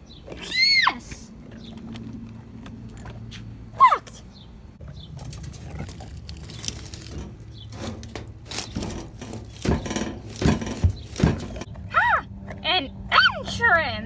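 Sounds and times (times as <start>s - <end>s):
loud thumps: 7.0s - 11.7s.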